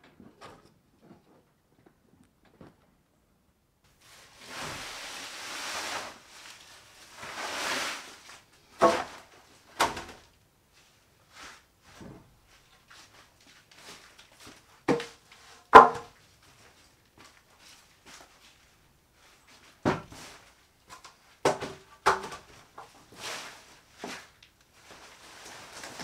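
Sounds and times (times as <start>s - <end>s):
corn stalks rustling on plastic tarp: 3.9s - 10.3s, 22.5s - 26.0s
wooden boards knocking: 15.7s - 16.1s.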